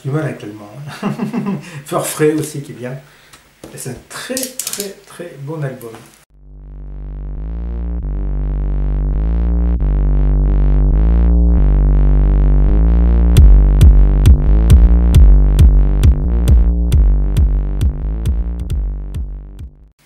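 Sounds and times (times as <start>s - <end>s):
sustained synth chords: 6.3s - 19.9s
steady drum beat: 13.4s - 19.8s.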